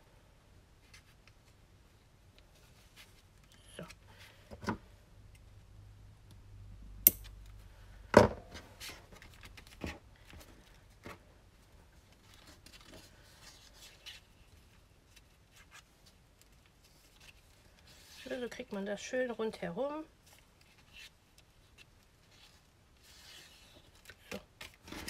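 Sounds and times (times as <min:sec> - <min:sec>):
cardstock rustling and scraping: 0:20.2 - 0:25.0.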